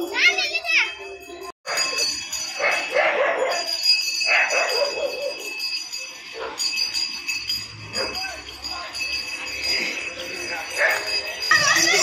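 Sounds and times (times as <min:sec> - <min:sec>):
bells jingling: 0:00.0 - 0:12.0
dog barking: 0:02.6 - 0:03.7, 0:04.3 - 0:05.4.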